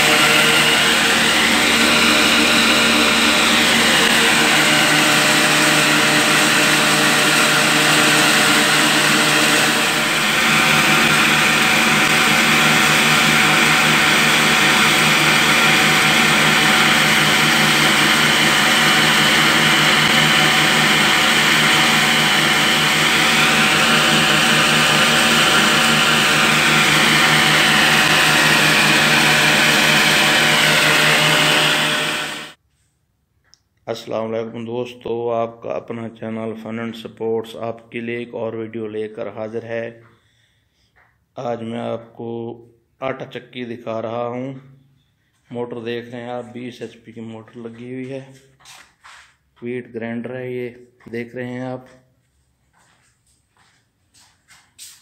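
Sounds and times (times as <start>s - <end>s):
flour mill grinding whir: 0.0s - 32.6s
high motor whine: 0.0s - 32.6s.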